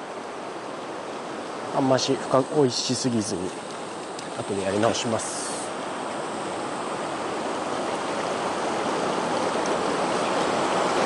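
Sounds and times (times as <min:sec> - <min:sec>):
rushing river rapid: 0:00.0 - 0:11.0.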